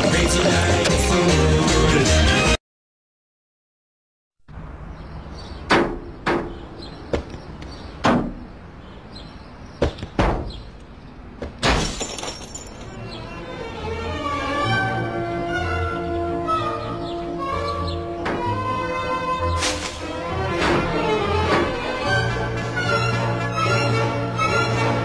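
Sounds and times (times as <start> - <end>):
music: 0.0 - 2.6, 13.0 - 25.0
objects crashing onto car: 11.4 - 13.0.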